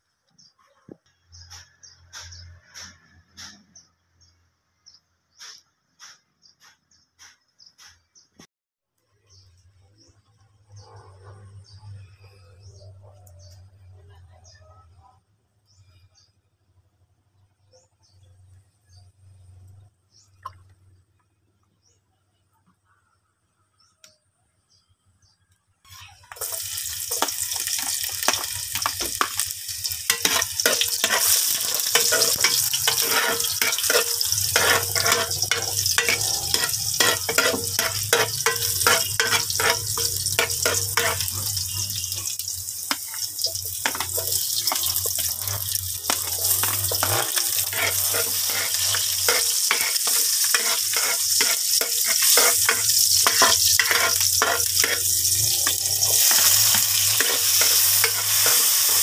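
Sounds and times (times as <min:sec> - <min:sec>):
onions sizzling in oil: 0:26.0 - 0:59.0
metal ladle scraping pot: 0:26.3 - 0:59.0.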